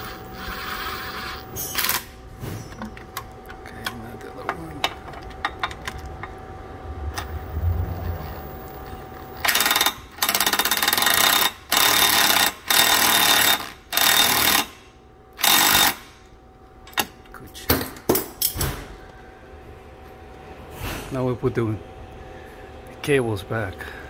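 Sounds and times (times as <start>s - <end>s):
cordless power tool buzzing: 0.0s - 2.1s.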